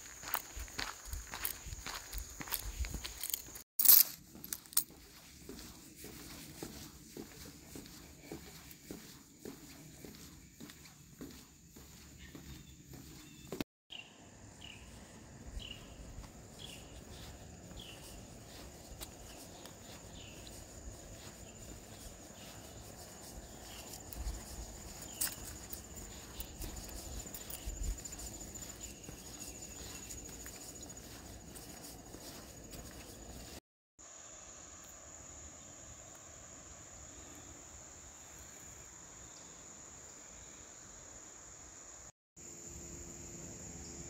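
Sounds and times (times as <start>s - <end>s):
insects trilling: 0.0s - 44.0s.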